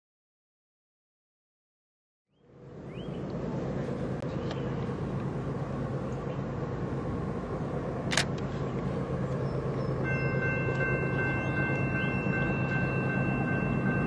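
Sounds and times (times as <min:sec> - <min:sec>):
freight train diesel rumble: 0:02.4 - 0:14.0.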